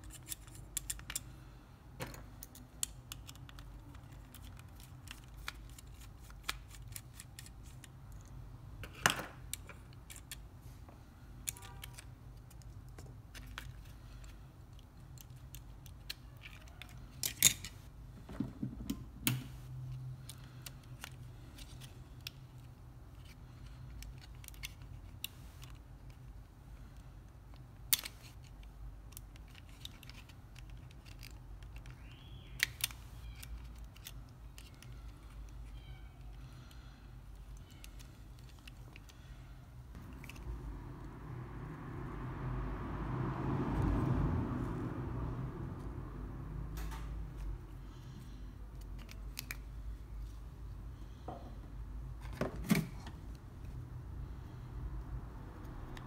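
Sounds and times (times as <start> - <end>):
low steady hum: 0.0 - 56.0
plastic parts clicking and knocking: 2.0 - 10.4, 27.5 - 35.6.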